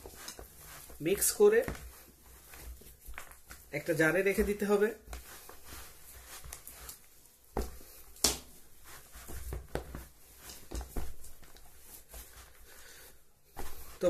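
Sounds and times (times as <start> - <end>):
hands kneading dough squishing: 0.0 - 14.0.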